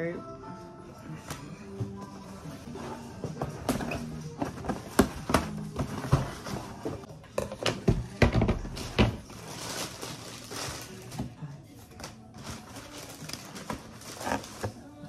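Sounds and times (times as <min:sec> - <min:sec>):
tissue paper rustling: 0:09.2 - 0:11.3, 0:11.9 - 0:14.7.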